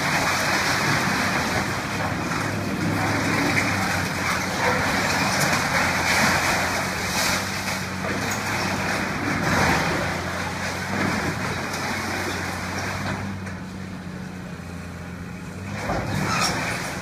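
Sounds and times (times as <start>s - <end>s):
rubble and masonry crashing: 0.0s - 13.6s
excavator diesel engine running: 0.0s - 17.0s.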